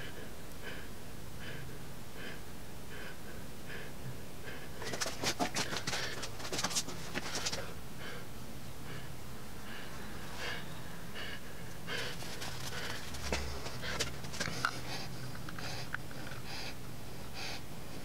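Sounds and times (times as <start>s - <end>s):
crinkling and rustling: 4.8s - 7.7s, 12.1s - 14.8s.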